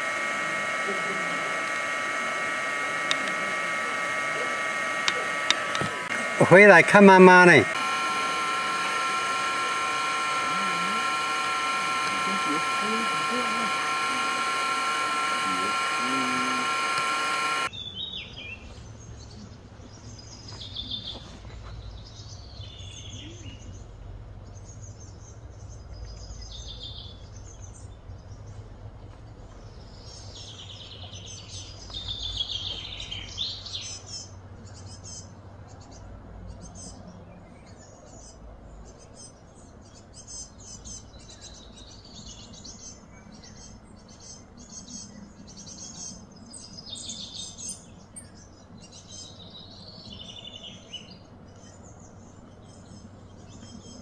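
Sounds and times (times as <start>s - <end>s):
loud multi-pitched hum: 0.0s - 17.7s.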